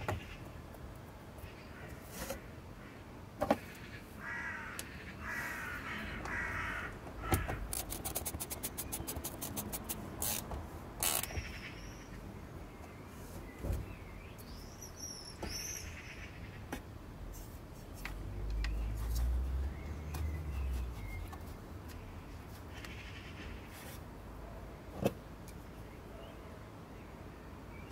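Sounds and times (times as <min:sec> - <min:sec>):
socket wrench ratcheting: 0:07.7 - 0:11.4.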